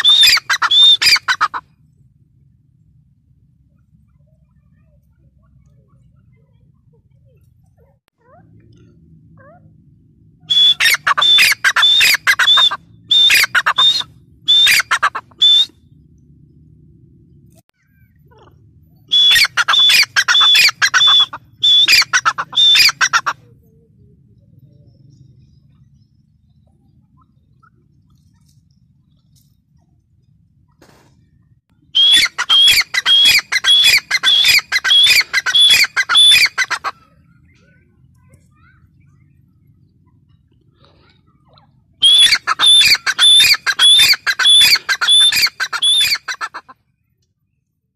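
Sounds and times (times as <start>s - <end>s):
bird calling harsh repeated notes: 0.0s - 1.6s, 10.5s - 15.7s, 17.9s - 23.4s, 32.0s - 37.2s, 42.0s - 46.8s
faint low hum: 20.9s - 32.0s.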